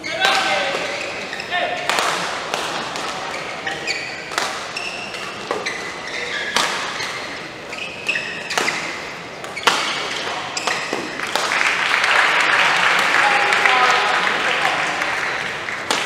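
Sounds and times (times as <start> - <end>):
shoes squeaking on court: 0.0 - 11.4
rackets striking shuttlecock: 0.2 - 11.8, 15.4 - 16.0
crowd cheering and clapping: 11.2 - 16.0.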